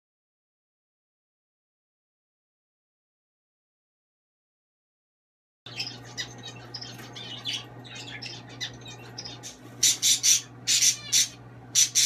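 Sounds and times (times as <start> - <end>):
parrot chirping and squeaking: 5.7 - 12.0
steady low hum: 5.7 - 12.0
parrot squawking harshly: 7.2 - 12.0.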